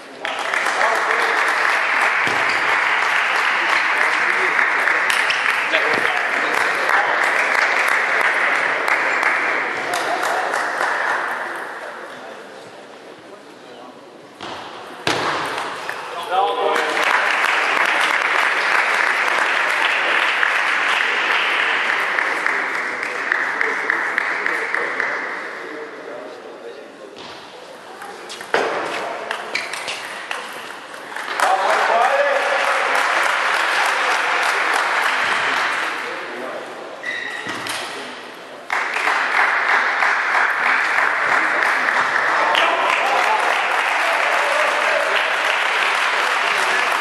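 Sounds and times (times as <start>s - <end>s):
spectators applauding: 0.0s - 11.9s, 15.5s - 25.3s, 30.3s - 36.4s, 38.6s - 47.0s.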